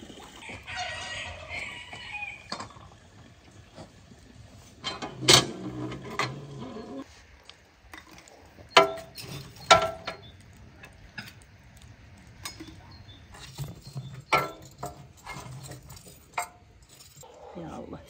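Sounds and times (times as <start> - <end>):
metal tongs clinking on iron: 13.4 - 17.2.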